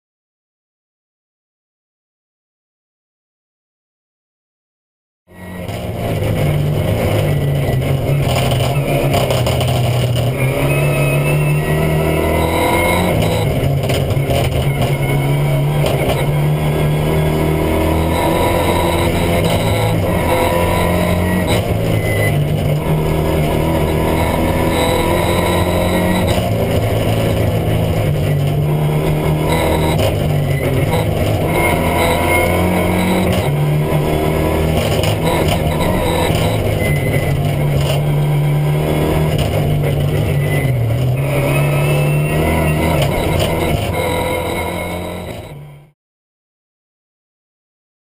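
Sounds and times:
rally car engine revving: 5.3 - 45.9
exhaust cracks: 5.6 - 10.6, 13.0 - 16.6.

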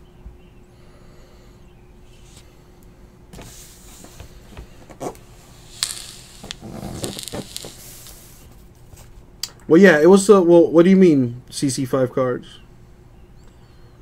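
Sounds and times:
cardboard rustling and scraping: 3.4 - 5.3.

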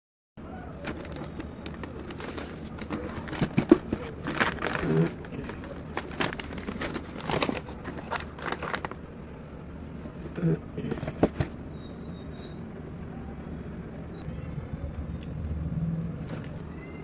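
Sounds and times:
paper and cardboard rustling: 0.7 - 11.6
paper crackling: 0.8 - 9.1.

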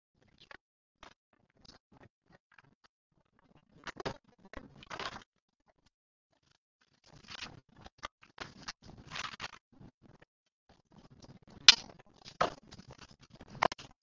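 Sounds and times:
rustling and scraping handling noises: 3.8 - 14.0.

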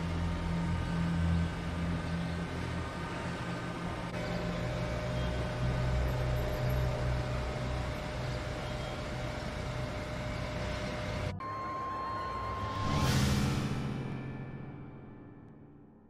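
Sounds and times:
engine rumbling: 0.0 - 11.4
faint whine: 0.0 - 14.8.

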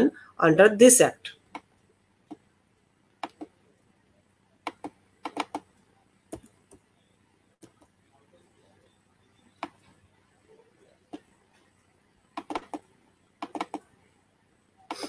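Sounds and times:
computer mouse clicking: 3.2 - 3.5, 4.6 - 5.7, 6.3 - 6.8, 12.3 - 13.9.

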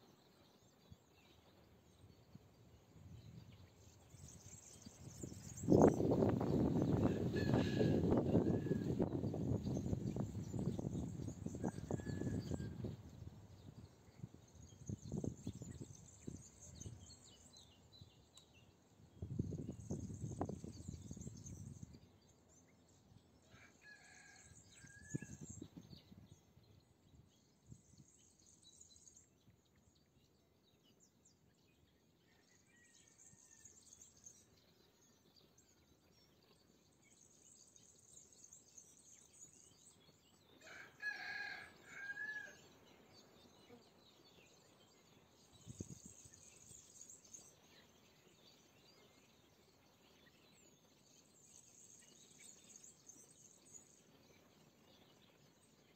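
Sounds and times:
rooster crowing: 7.0 - 9.0, 40.6 - 42.6.

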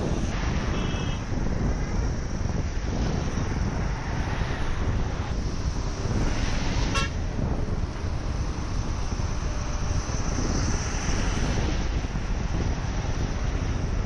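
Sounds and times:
road traffic: 0.0 - 14.0
vehicle horn toot: 0.7 - 1.2, 6.9 - 7.2.

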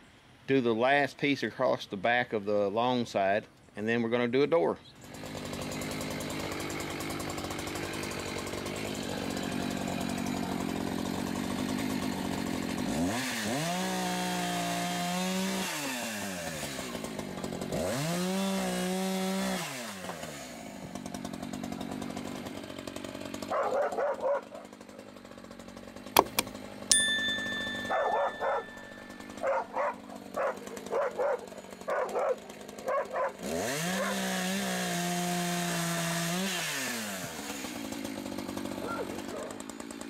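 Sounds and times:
chainsaw cutting and revving: 5.0 - 40.0
dog barking: 23.5 - 24.6, 27.8 - 28.8, 29.4 - 33.4, 34.0 - 34.2, 38.8 - 39.6.

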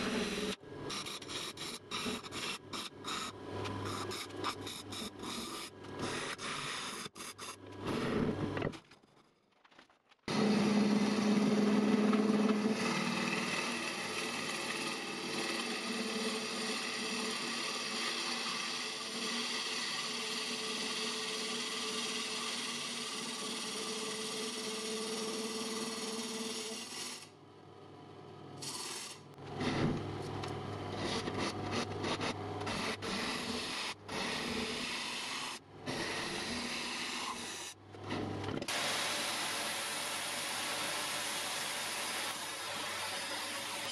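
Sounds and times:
wood lathe humming: 0.0 - 7.2, 10.3 - 27.3, 28.6 - 43.9
gouge scraping wood on lathe: 0.0 - 8.3, 10.3 - 27.2, 30.9 - 37.7.

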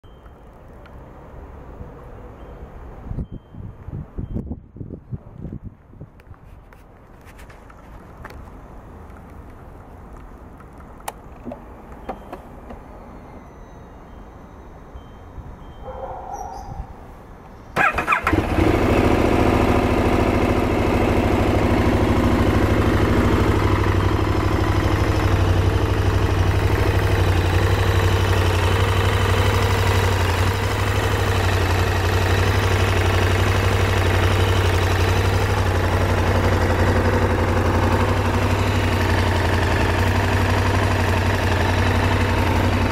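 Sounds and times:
starter motor cranking: 17.8 - 18.8
motorcycle engine idling: 17.8 - 42.9.

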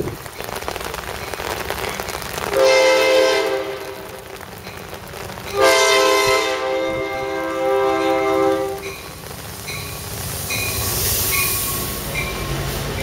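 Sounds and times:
steady rain hiss: 0.0 - 13.0
train horn blasts: 2.5 - 4.3, 5.5 - 9.0.

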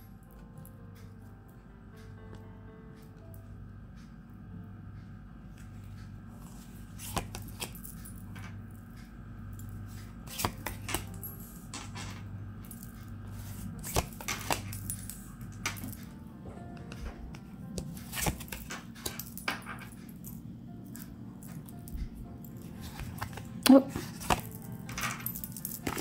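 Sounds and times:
cards laid on a hard table: 6.4 - 7.7, 10.3 - 11.2, 13.4 - 14.9, 17.8 - 19.2, 22.8 - 26.0.

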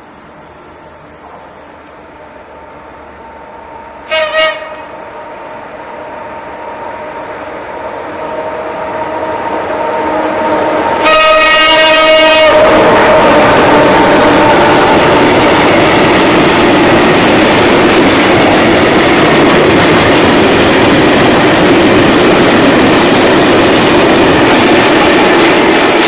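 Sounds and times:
train rumble: 0.0 - 26.0
train horn blasts: 4.0 - 5.0, 10.9 - 14.6.

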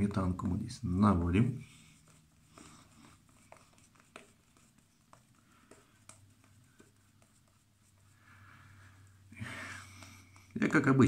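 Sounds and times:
shaving brush swishing lather: 1.3 - 9.2.

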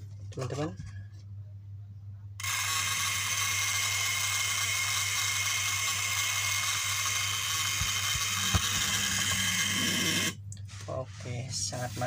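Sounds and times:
inverter buzzing: 2.4 - 10.7.

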